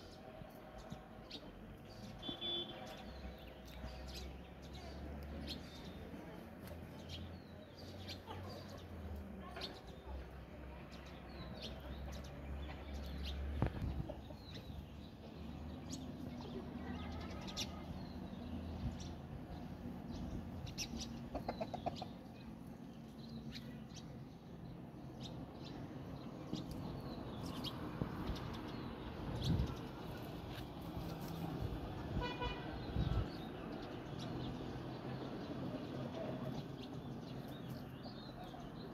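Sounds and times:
small birds chirping: 0.0s - 38.9s
chickens clucking: 21.0s - 22.4s.

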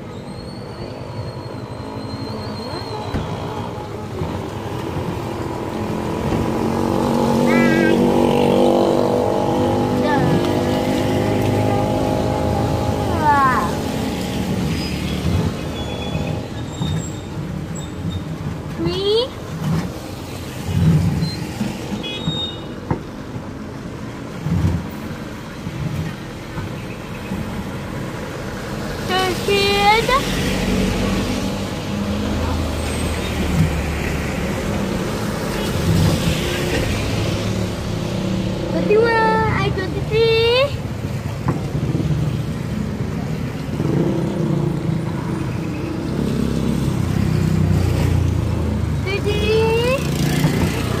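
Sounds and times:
road noise rumble: 0.0s - 51.0s
child calling out: 7.4s - 8.3s.

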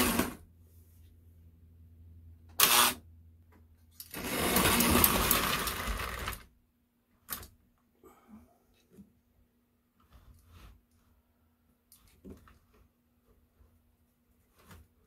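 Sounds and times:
low steady hum: 0.2s - 4.2s.

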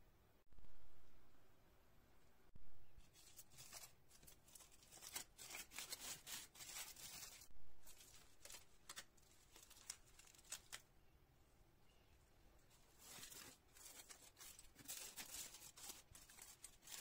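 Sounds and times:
aluminium foil crinkling: 3.0s - 10.9s, 12.7s - 17.0s.

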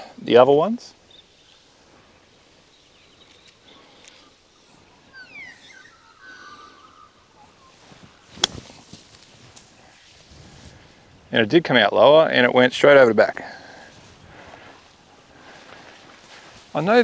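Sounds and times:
birds calling: 0.0s - 11.3s
golf club striking ball: 8.3s - 8.8s.

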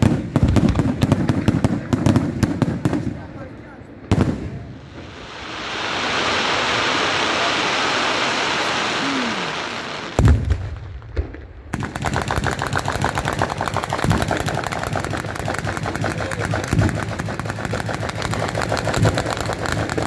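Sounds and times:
firecrackers cracking rapidly: 0.0s - 3.5s, 4.1s - 20.0s
rushing crackle of aerial shells: 11.8s - 20.0s.

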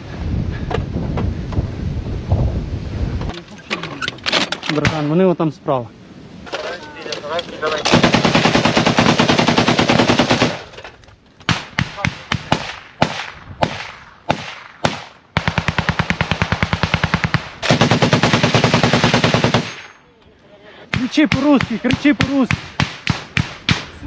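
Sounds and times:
machine gun bursts: 7.7s - 10.8s, 15.4s - 20.0s
distant gunshots: 7.8s - 10.7s, 11.5s - 20.0s, 20.9s - 24.0s.

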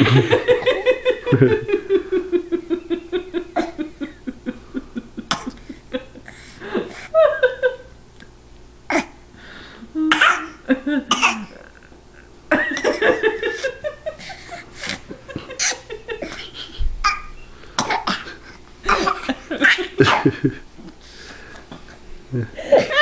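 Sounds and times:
woman and baby laughing: 0.0s - 5.4s, 12.5s - 14.6s, 15.2s - 16.9s, 18.8s - 20.6s
breathy cough-like voice sounds: 10.1s - 11.6s, 17.8s - 19.1s.

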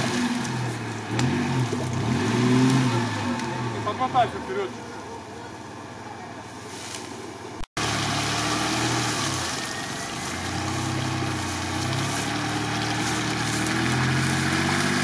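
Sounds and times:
car engine revving under load: 0.0s - 4.2s.

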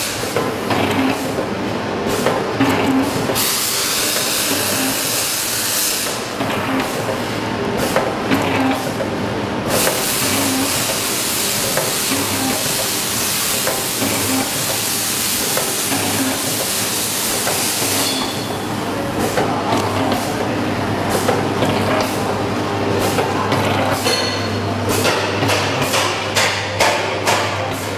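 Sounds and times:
machine hissing: 3.0s - 6.3s, 9.7s - 18.7s.

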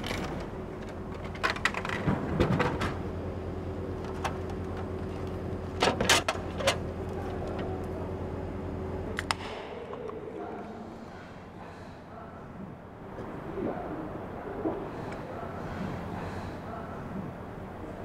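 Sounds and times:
vending machine hum: 0.0s - 18.0s.

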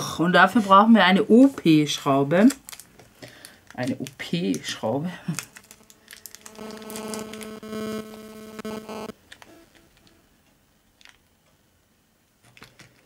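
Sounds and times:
plastic bag of screws handled: 2.5s - 7.4s
buzzing hum: 5.4s - 10.4s.

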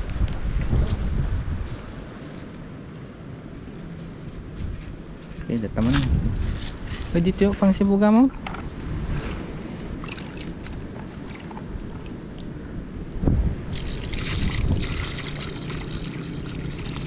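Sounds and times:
water gushing from bucket: 13.7s - 17.0s.

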